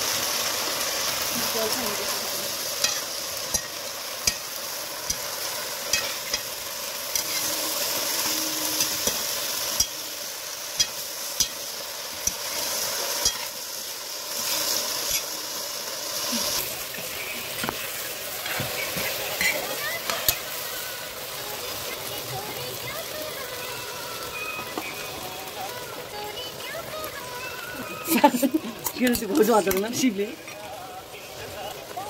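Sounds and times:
vegetables sizzling in wok: 0.0 - 32.0
metal spatula scraping pan: 5.9 - 6.5.

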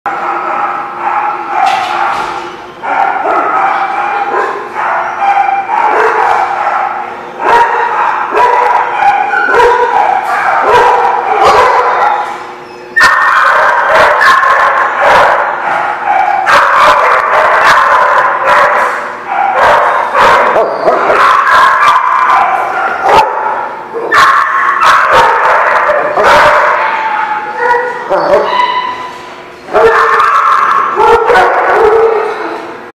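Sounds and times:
dogs barking and yipping: 0.1 - 32.9
dog whining: 8.4 - 14.6, 19.4 - 21.9, 26.0 - 32.8.

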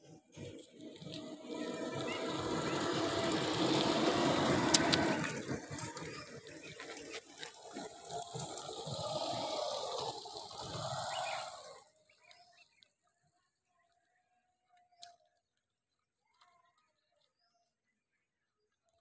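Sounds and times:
motorcycle passing: 0.0 - 12.0.

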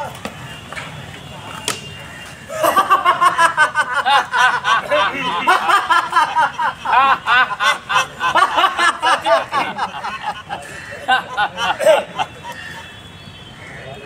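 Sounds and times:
high-pitched human laughter: 2.5 - 12.9.

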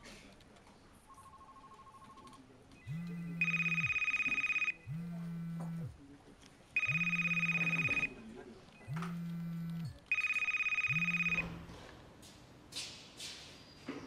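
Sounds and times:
phone ringing: 1.1 - 6.0, 6.8 - 8.2, 8.8 - 11.6.

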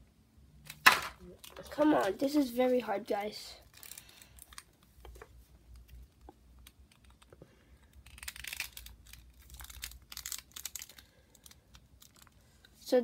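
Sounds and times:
plastic parts clicking: 3.7 - 5.2, 5.8 - 12.4
crinkly rustle: 8.1 - 13.0.

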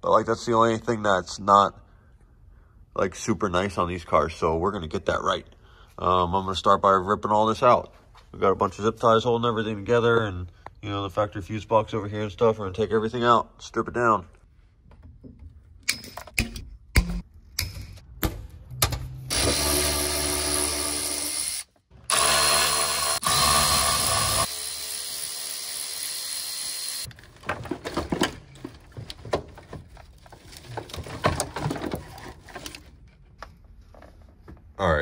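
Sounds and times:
cordless drill running: 19.3 - 27.1
wiring and plastic connectors rattling: 27.1 - 34.7.

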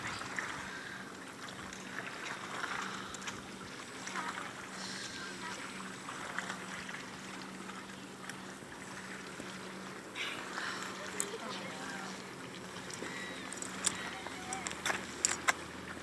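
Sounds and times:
steady low hum: 0.0 - 16.0
water noise: 0.0 - 16.0
wind: 0.0 - 16.0.

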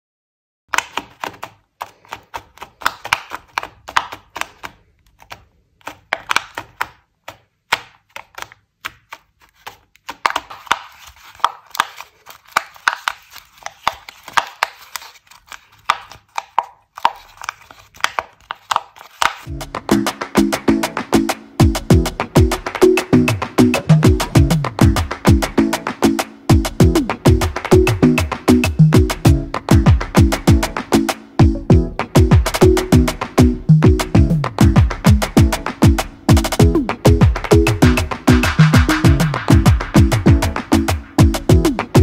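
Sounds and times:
paper pops and clicks: 0.7 - 19.5.

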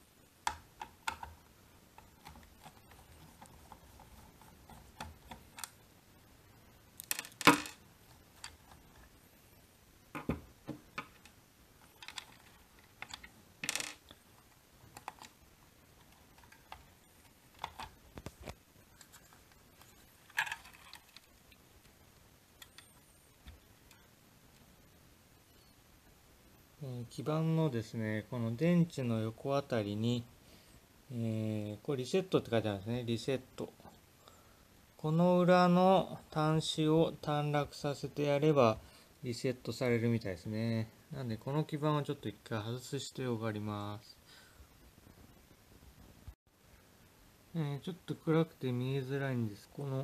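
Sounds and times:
knocks on plastic housing: 10.2 - 10.8.

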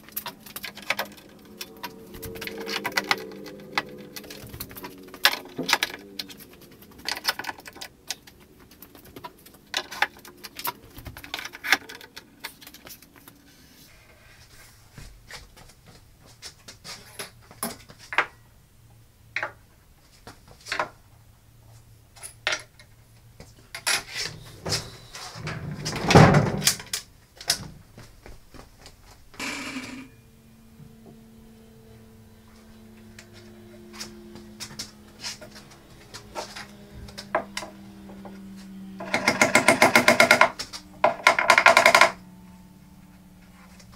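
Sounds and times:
tools clicking on wooden workbench: 0.0 - 13.4, 39.0 - 42.2.

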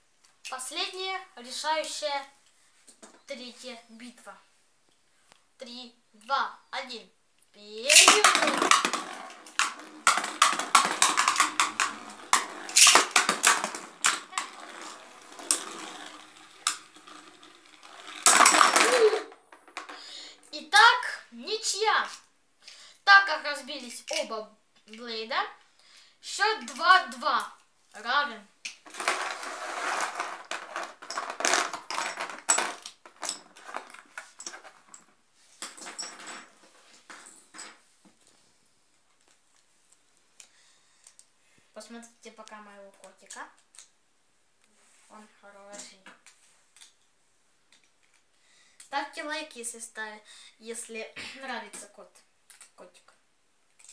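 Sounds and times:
plastic toy parts clattering: 7.8 - 20.1, 28.8 - 37.8
spinning tops clacking in plastic basin: 7.8 - 20.2, 28.9 - 35.1.

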